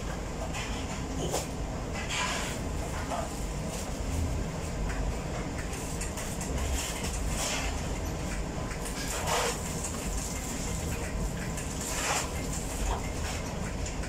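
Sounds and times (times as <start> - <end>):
bakery machinery humming: 0.0 - 14.0.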